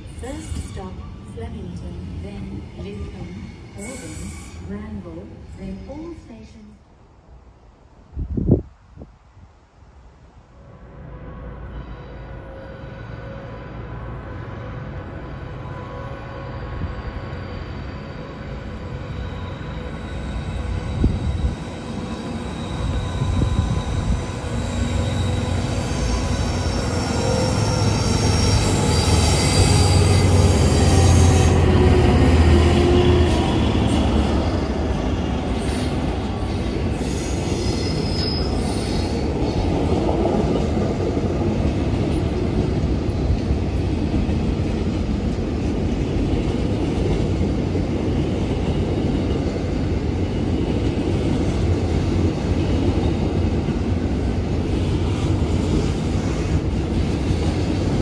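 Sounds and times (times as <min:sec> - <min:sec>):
wheel squeal: 0:37.0 - 0:39.2.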